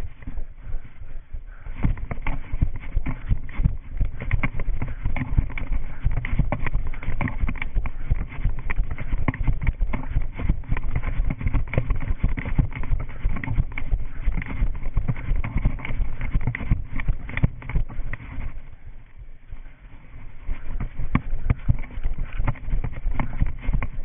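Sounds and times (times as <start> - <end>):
running footfalls on pavement: 1.5 - 18.6
camera knocking and rubbing: 1.7 - 18.7, 20.4 - 24.0.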